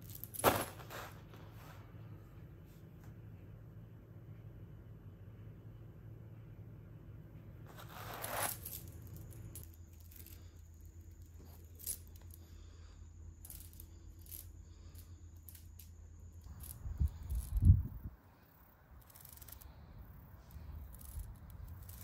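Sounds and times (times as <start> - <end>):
low steady hum: 0.0 - 22.0
metal chain clinking: 7.7 - 12.6, 13.4 - 17.8, 19.0 - 19.7, 20.5 - 22.0.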